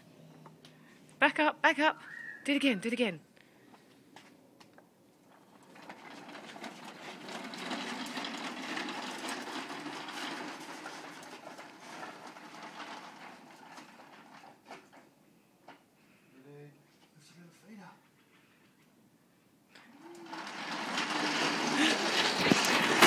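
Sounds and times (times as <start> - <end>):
plastic wheels rolling on asphalt: 3.7 - 16.1, 19.7 - 23.0.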